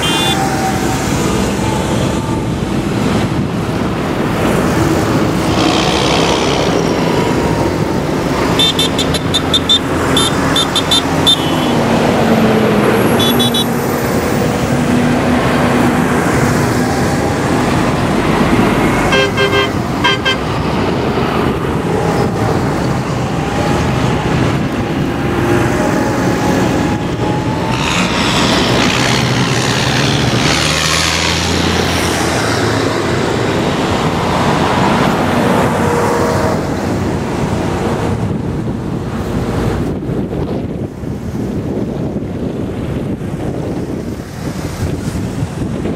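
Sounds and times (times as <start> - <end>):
short horn toots: 0.0 - 0.4, 8.6 - 11.8, 13.2 - 13.7, 19.1 - 20.4
tractor diesel engines: 0.0 - 45.9
tyres on road: 0.0 - 45.9.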